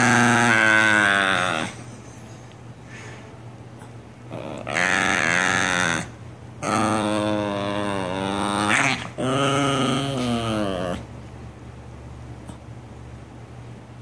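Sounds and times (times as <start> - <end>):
small dog howling: 0.0 - 1.8, 4.3 - 11.0.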